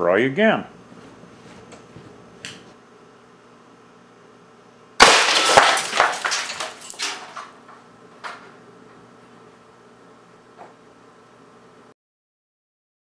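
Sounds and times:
loud crack of impact: 5.0s - 7.6s
debris clattering and knocking: 5.0s - 8.4s.

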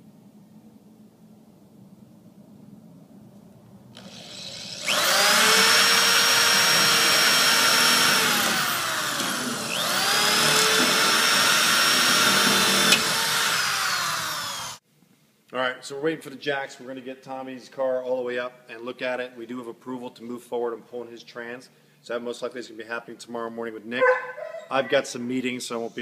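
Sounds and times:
electric drill boring metal: 4.0s - 14.8s.

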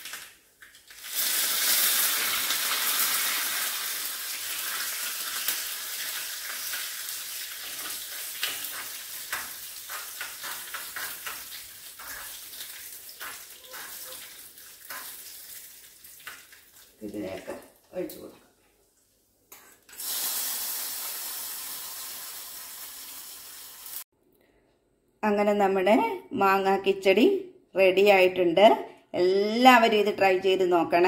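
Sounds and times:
crackles in pan: 0.0s - 17.5s, 19.6s - 24.0s
spices sizzling in hot oil: 0.8s - 17.3s, 19.9s - 24.1s.

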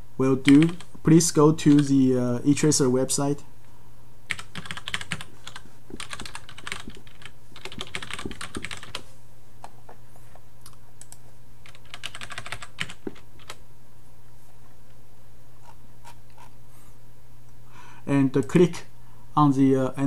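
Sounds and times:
low steady hum: 0.0s - 20.0s
typing on computer keyboard: 0.5s - 0.9s, 1.7s - 1.9s, 4.3s - 9.0s, 11.0s - 13.6s.

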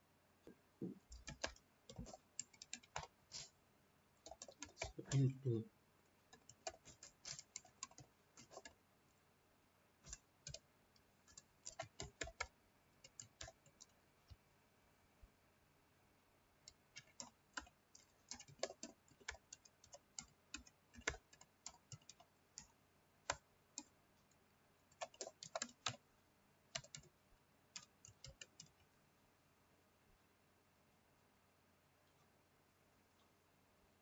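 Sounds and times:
typing on computer keyboard: 1.0s - 3.5s, 4.2s - 5.3s, 6.2s - 8.8s, 10.0s - 14.0s, 16.6s - 24.0s, 24.8s - 26.0s, 26.7s - 28.9s.

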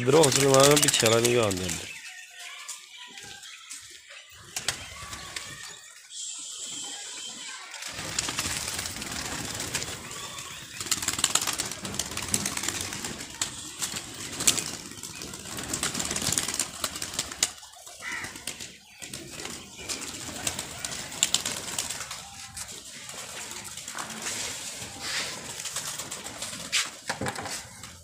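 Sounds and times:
wings flapping: 0.0s - 2.0s, 4.3s - 5.9s, 7.5s - 28.0s
rustles and clicks of pigeons: 0.0s - 28.0s
pigeons cooing: 7.9s - 26.4s.

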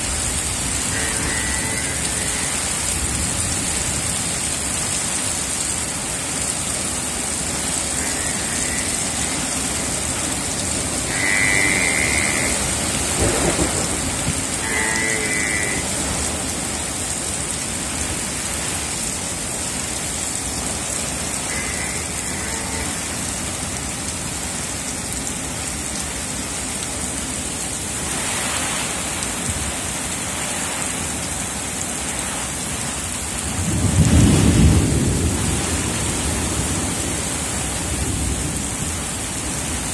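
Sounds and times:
heavy rain pouring: 0.0s - 39.9s
low rumble of thunder: 13.0s - 14.6s, 33.5s - 39.0s.

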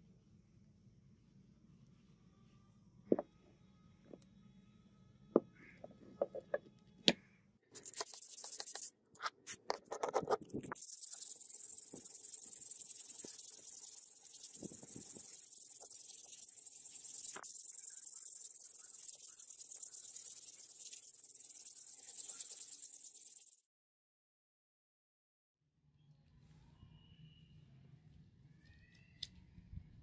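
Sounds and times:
high-pitched hiss: 10.7s - 23.6s.

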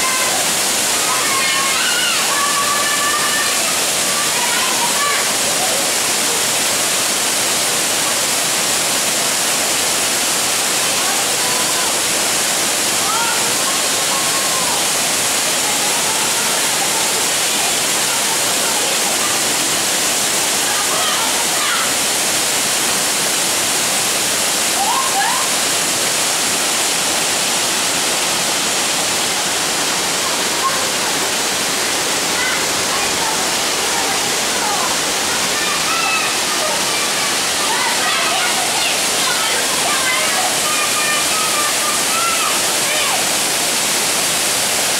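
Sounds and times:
waterfall pouring onto rocks: 0.0s - 44.9s
faint voices: 29.0s - 43.8s.

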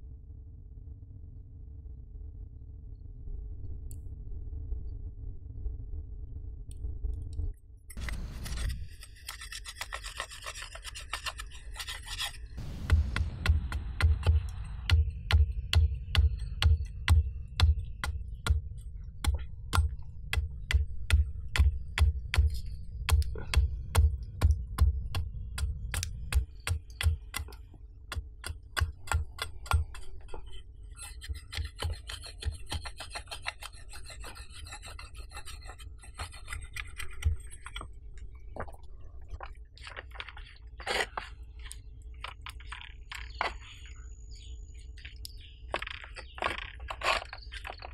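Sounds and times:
birds chirping: 41.3s - 47.9s.

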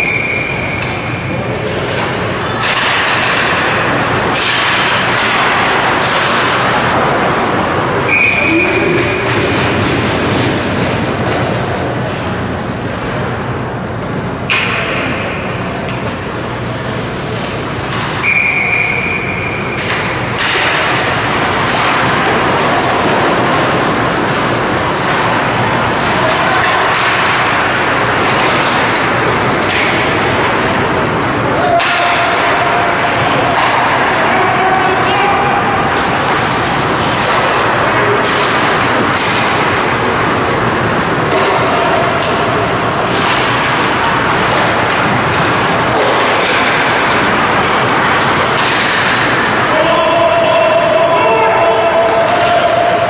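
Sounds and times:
whistle blown: 0.0s - 0.8s, 8.1s - 8.9s, 18.2s - 19.7s
hollow ice rink noise: 0.0s - 53.0s
sharp crack: 2.6s - 7.0s, 41.2s - 49.7s.

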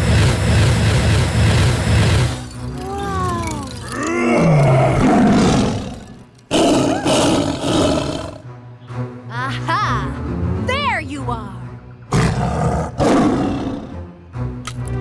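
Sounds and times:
cartoon voice roaring and snarling: 2.8s - 8.3s.

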